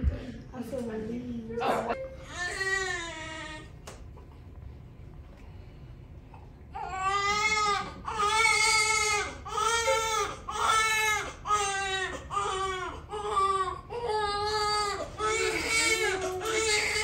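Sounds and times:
newborn baby crying: 1.6s - 3.7s, 6.8s - 17.0s.

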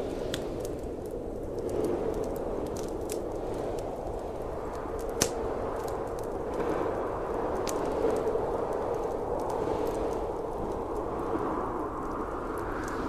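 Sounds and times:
sharp pops of burning wood: 0.0s - 0.9s, 4.7s - 6.3s
wood fire crackling: 0.0s - 13.0s.

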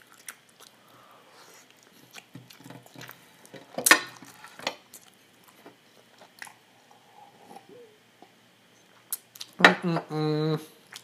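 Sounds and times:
person chewing: 0.0s - 3.3s, 4.2s - 7.8s, 9.0s - 9.6s.

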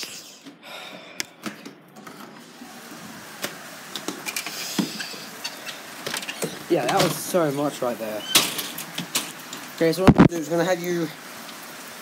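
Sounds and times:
heavy rain hiss: 2.4s - 12.0s.

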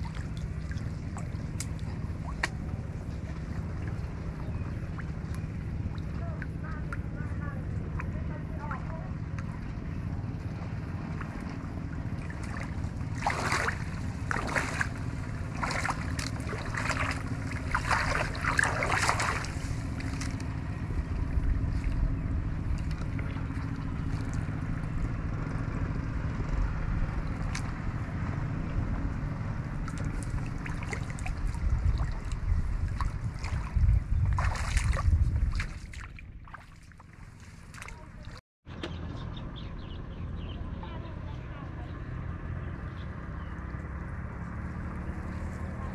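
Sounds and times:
water splashing: 0.0s - 24.9s, 29.7s - 38.4s
wind rumbling on microphone: 0.0s - 45.9s.

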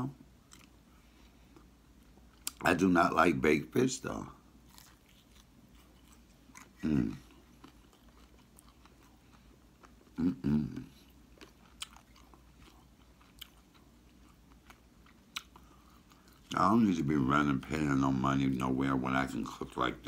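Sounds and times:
person chewing crispy food: 0.4s - 2.6s, 4.6s - 16.8s
non-word voice sounds: 6.8s - 7.2s, 10.2s - 10.9s.

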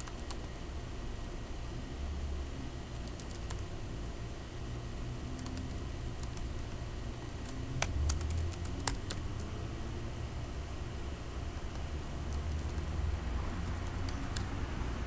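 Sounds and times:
computer keyboard typing: 0.0s - 0.5s, 2.9s - 3.7s, 5.3s - 9.6s, 11.5s - 14.6s
low background hum: 0.0s - 15.0s.

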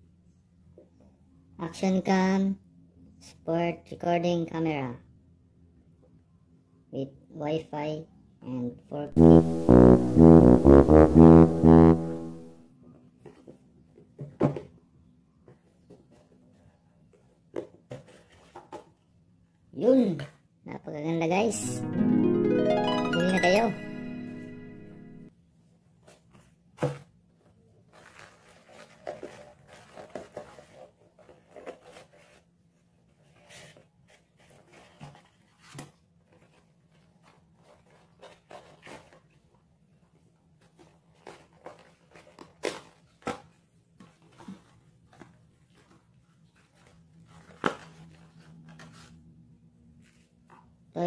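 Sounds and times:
musical sound effect: 9.2s - 12.6s, 21.5s - 25.3s.

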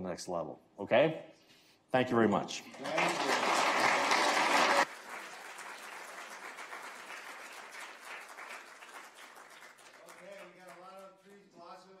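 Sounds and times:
audience applauding: 2.7s - 11.2s.

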